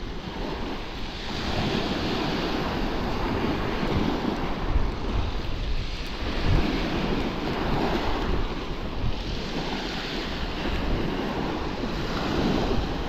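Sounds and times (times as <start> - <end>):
waves washing onto shingle: 0.0 - 13.0
wind buffeting microphone: 0.0 - 13.0.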